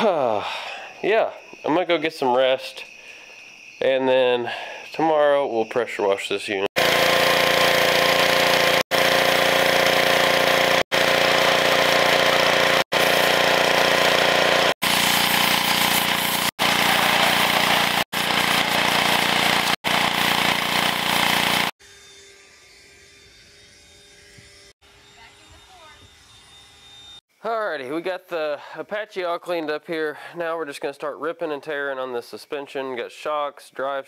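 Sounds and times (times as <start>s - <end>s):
faint outdoor background: 0.0s - 6.8s, 21.8s - 34.0s
pressure washer spraying metal: 6.8s - 21.7s.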